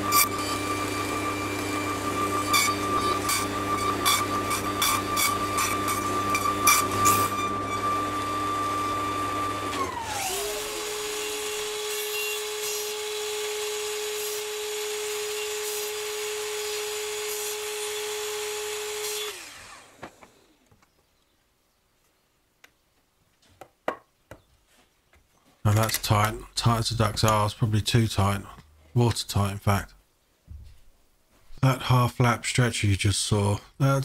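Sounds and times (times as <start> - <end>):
mitre saw cutting wood: 0.0 - 20.6
table saw running: 0.0 - 20.6.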